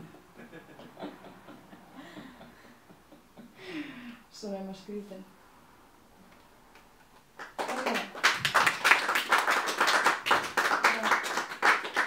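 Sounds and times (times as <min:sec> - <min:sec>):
audience applauding: 0:07.4 - 0:12.0.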